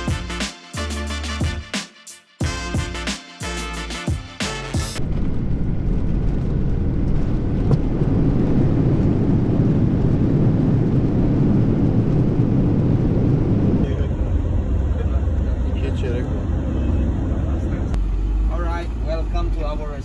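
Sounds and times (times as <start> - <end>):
airplane cabin rumble on runway: 5.0 - 20.0
van driving on road: 13.0 - 20.0.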